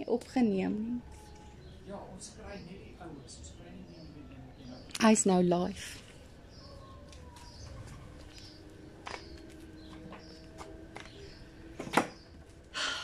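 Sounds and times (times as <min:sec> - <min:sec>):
footsteps on brick paving: 0:07.2 - 0:11.2.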